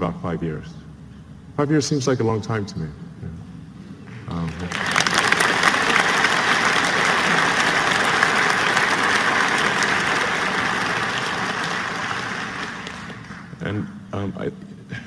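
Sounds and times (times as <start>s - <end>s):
large audience applauding: 4.3s - 13.6s.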